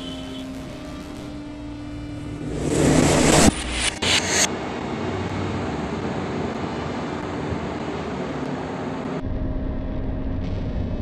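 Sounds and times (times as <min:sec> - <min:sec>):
ceiling fan whooshing: 0:01.4 - 0:06.5.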